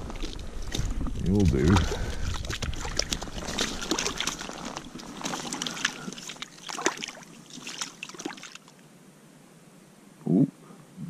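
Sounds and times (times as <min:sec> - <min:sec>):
light splashing in water: 0:01.6 - 0:08.8.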